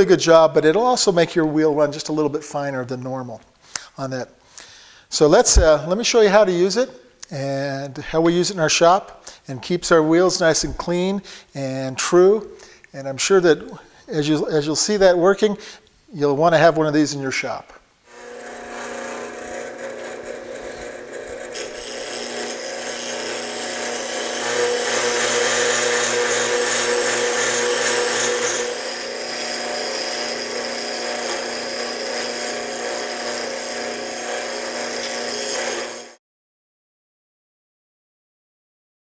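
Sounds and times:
bench grinder humming: 18.1 - 36.2.

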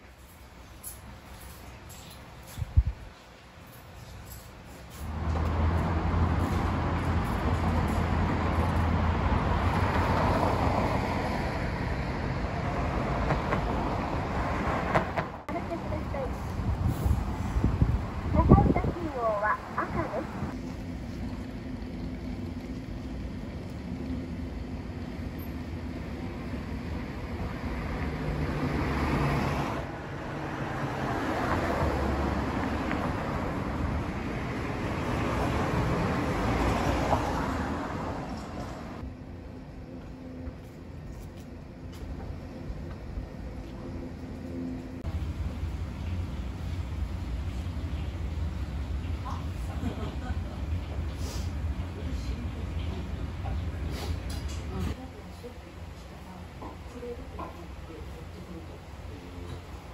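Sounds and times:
vehicles passing on road: 0.0 - 59.9
vehicle passing by: 5.0 - 18.8, 26.4 - 39.1.

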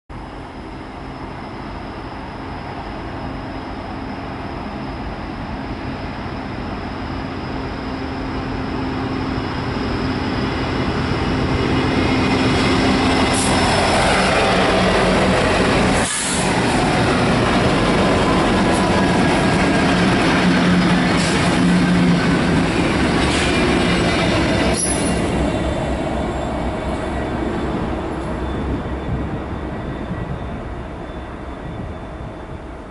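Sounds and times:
wheels on rail: 6.2 - 32.9
locomotive engines running: 8.4 - 30.7.

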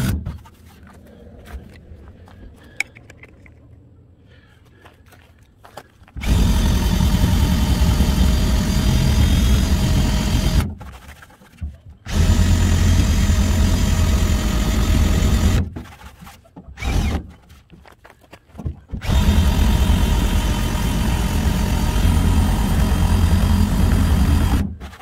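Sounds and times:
drill spinning eraser wheel: 6.2 - 10.7, 12.1 - 15.6, 19.0 - 25.0.

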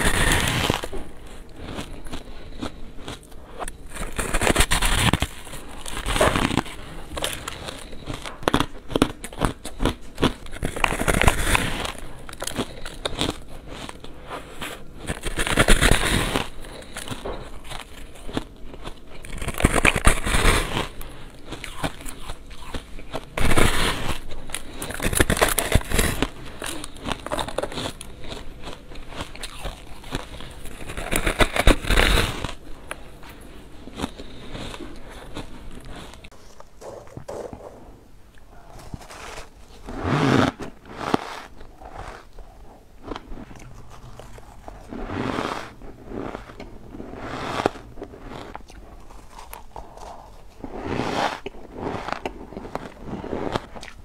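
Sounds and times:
ice crunching bites: 0.0 - 33.1
crackling chewing: 0.0 - 54.0.

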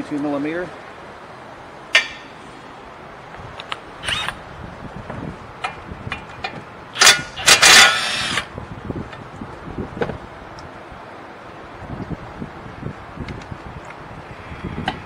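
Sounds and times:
metal tools clinking: 1.9 - 2.4, 6.2 - 8.4
cordless power tool bursts: 4.0 - 4.4, 7.0 - 8.5.

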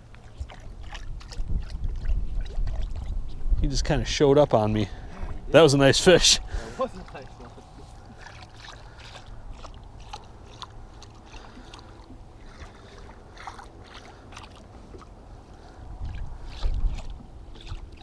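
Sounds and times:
waves splashing against boat hull: 6.4 - 18.0.

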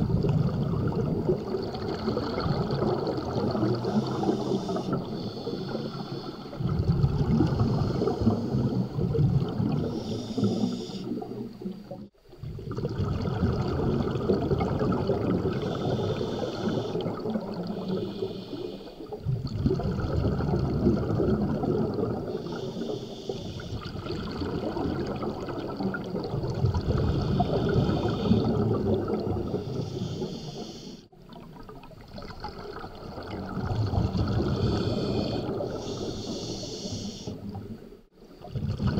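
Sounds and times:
bubbling exhalations underwater: 0.0 - 5.2, 6.6 - 18.1, 19.1 - 22.6, 23.8 - 29.8, 31.2 - 36.1, 38.4 - 38.9
regulator hissing inhalations: 3.8 - 6.6, 9.9 - 11.2, 15.6 - 17.1, 17.7 - 19.1, 22.4 - 23.8, 27.0 - 28.7, 29.5 - 31.1, 34.4 - 37.4.

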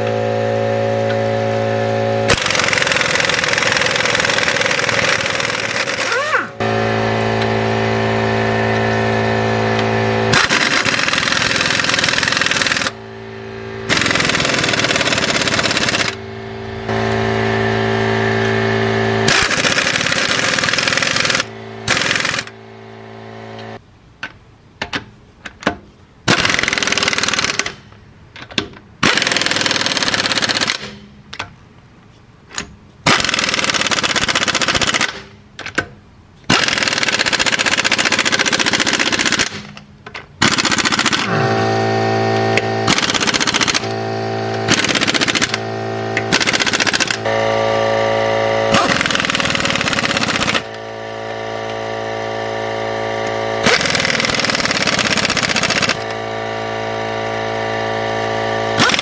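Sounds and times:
steady hum: 0.0 - 25.4, 39.6 - 58.8
pneumatic impact wrench hammering: 1.0 - 7.6, 8.3 - 22.6, 23.5 - 31.5, 32.5 - 59.0.

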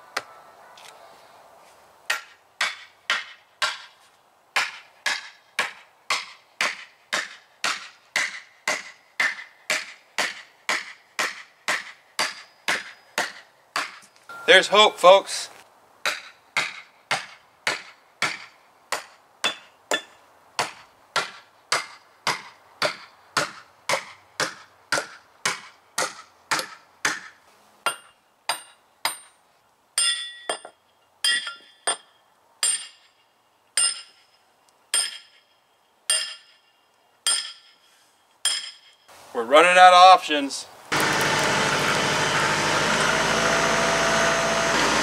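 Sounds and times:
sledgehammer clanging on steel wedges: 4.6 - 14.9, 16.1 - 29.4, 30.0 - 33.2, 33.8 - 34.3, 34.9 - 35.5, 36.1 - 39.0.

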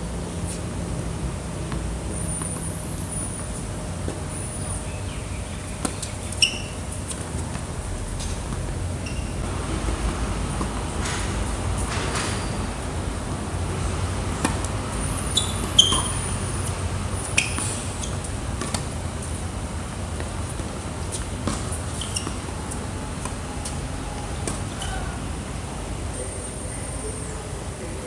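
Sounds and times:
tennis ball struck and bouncing: 14.4 - 16.3, 18.6 - 19.0, 20.2 - 22.5.

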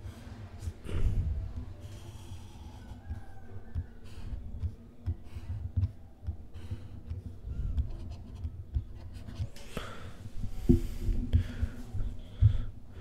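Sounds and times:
stylus tapping on tablet: 1.6 - 9.6.

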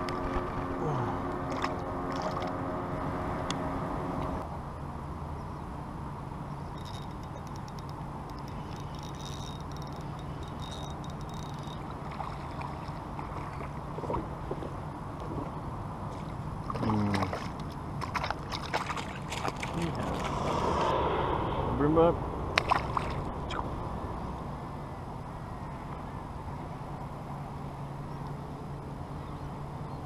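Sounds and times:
steady low rumble: 0.0 - 30.0
water sloshing around kayak: 8.5 - 20.3
splashes and knocks: 16.1 - 20.3.

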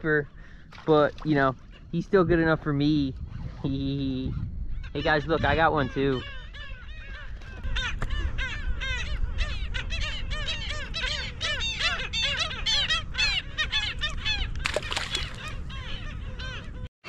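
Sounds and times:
flock of birds calling: 4.7 - 16.9.

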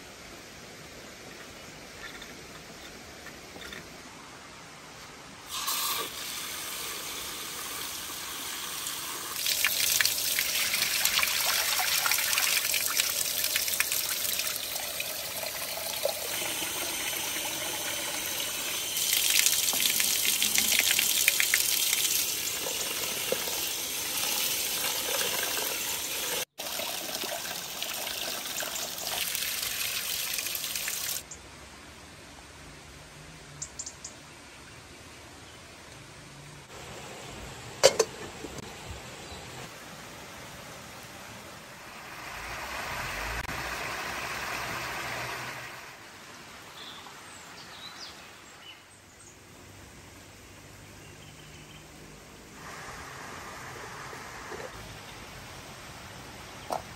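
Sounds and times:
tap water splashing into concrete basin: 9.4 - 18.0, 19.0 - 31.2.

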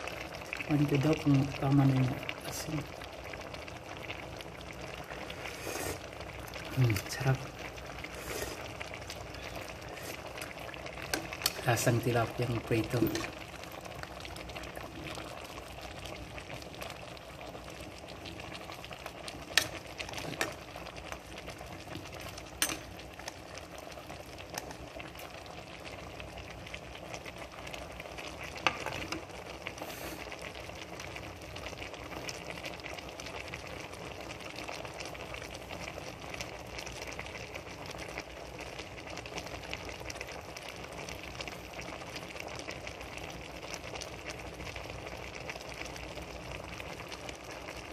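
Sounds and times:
broth simmering and bubbling: 0.0 - 47.9
metal ladle clicking on pot: 22.6 - 22.9.

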